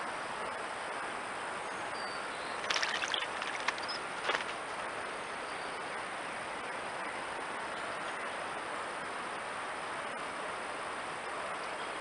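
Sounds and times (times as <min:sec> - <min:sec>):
microphone hiss: 0:00.0 - 0:12.0
bird wings fluttering: 0:02.6 - 0:04.7.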